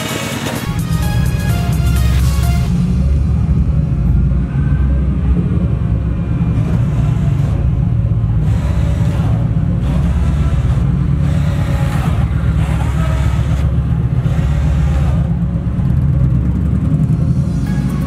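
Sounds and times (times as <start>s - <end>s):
background music: 0.0s - 3.4s, 16.9s - 18.0s
motorcycle engine rumbling: 0.0s - 18.0s.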